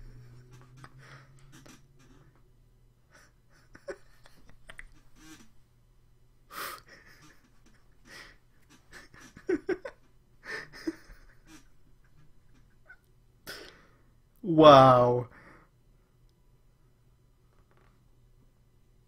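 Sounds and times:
man stifling laughter: 0:00.0 - 0:02.2, 0:03.1 - 0:05.5, 0:06.5 - 0:13.1.

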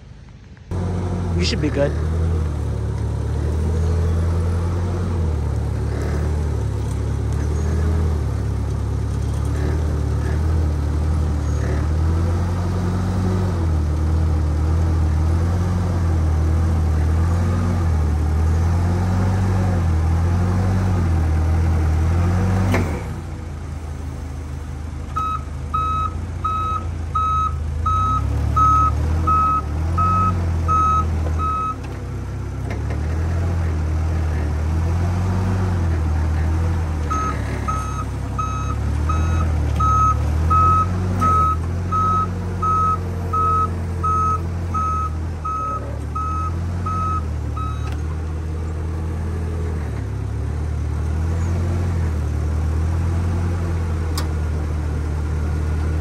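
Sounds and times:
forklift engine revving: 0:00.7 - 0:56.0
reversing alarm beeping: 0:25.2 - 0:31.8, 0:37.1 - 0:47.9.

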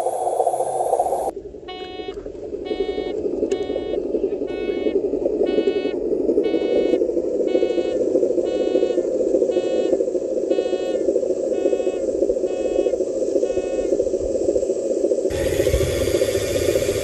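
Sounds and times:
reversing beeps: 0:01.7 - 0:09.9, 0:10.5 - 0:11.0, 0:11.6 - 0:13.9
harsh mechanical whir: 0:15.3 - 0:17.0
toy truck running drone: 0:15.3 - 0:17.0.

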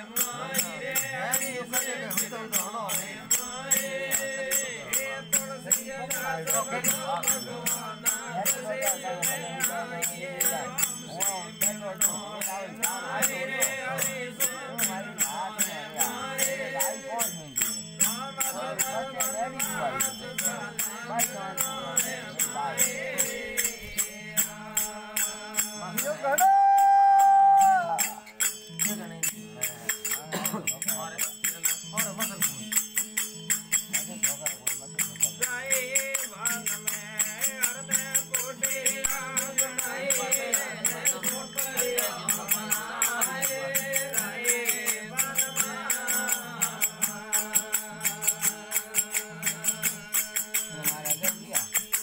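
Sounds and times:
harmonium and tambura: 0:00.0 - 0:26.2, 0:27.4 - 0:52.0
man singing: 0:00.0 - 0:32.8, 0:33.5 - 0:52.0
hand percussion clicking beat: 0:00.0 - 0:52.0.

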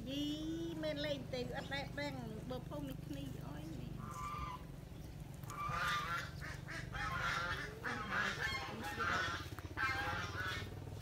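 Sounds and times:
steady low hum: 0:00.0 - 0:11.0
bird honking: 0:04.0 - 0:04.7, 0:05.4 - 0:11.0.

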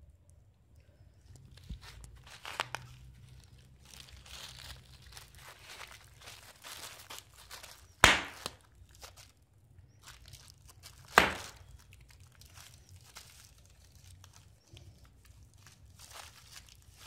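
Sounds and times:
bubble wrap crinkling: 0:01.1 - 0:17.0
bubble wrap loud crack: 0:01.4 - 0:09.4, 0:10.0 - 0:17.0.

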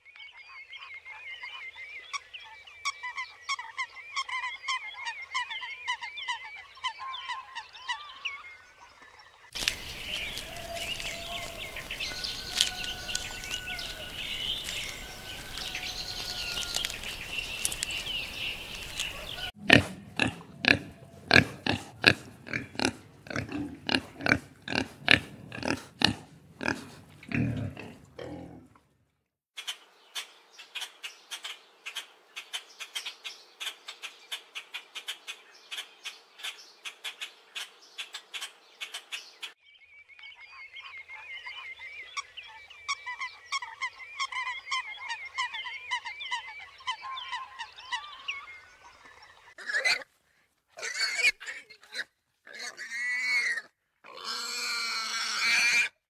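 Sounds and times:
birds cackling: 0:09.5 - 0:28.0, 0:40.3 - 0:50.0
outdoor hiss: 0:09.6 - 0:12.6
thin whistled bird calls: 0:09.6 - 0:19.5
bird clicking: 0:12.4 - 0:14.0, 0:14.6 - 0:19.4.

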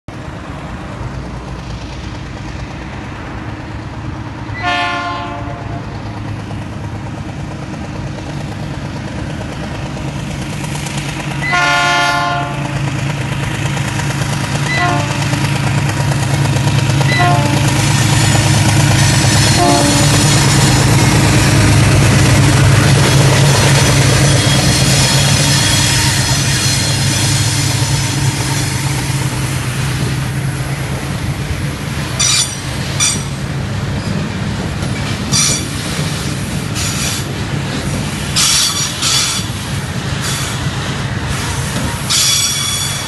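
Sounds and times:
diesel engine rumble: 0:00.1 - 0:04.6, 0:05.2 - 0:42.1
locomotive horn blasts: 0:04.6 - 0:05.8, 0:11.4 - 0:12.8, 0:14.7 - 0:15.4, 0:17.1 - 0:17.8, 0:19.3 - 0:20.4, 0:24.3 - 0:28.1.

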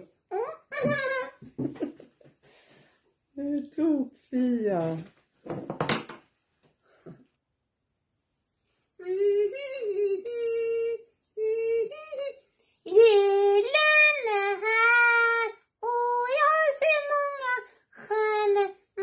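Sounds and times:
high voice singing: 0:09.0 - 0:18.8.

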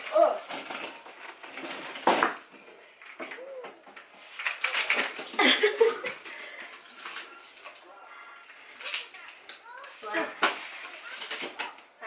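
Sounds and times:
stroller clicks and rattles: 0:04.4 - 0:07.8.

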